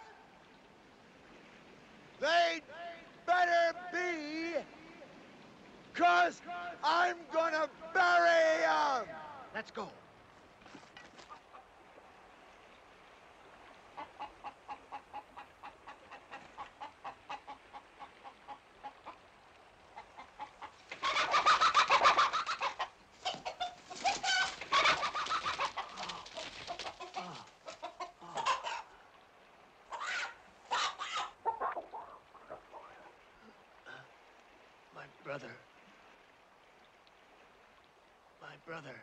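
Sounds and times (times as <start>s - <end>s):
chickens clucking: 13.9s - 19.2s, 19.9s - 29.0s, 29.9s - 33.2s
chickens squawking: 13.9s - 19.2s, 19.9s - 29.0s, 29.9s - 33.2s.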